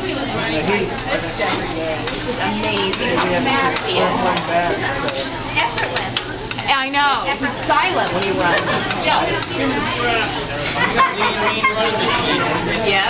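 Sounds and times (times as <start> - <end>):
murmur of voices: 0.0 - 13.0
rice sizzling on a griddle: 0.0 - 13.0
metal spatula scraping: 0.4 - 6.6.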